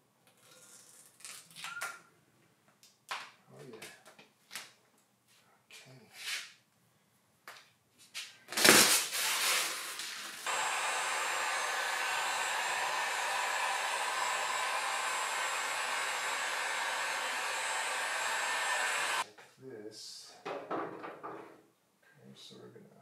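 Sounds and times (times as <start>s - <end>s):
heat gun blowing hiss: 8.7s - 19.2s.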